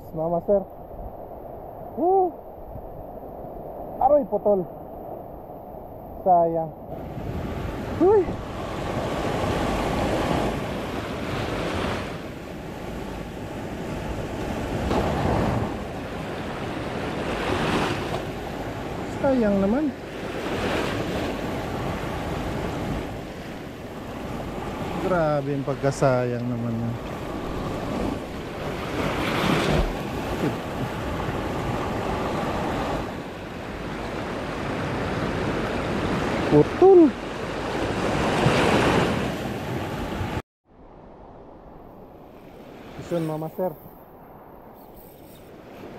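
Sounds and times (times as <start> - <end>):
surf washing over rocks: 6.3 - 40.4, 42.3 - 44.1
wind buffeting microphone: 26.5 - 43.1.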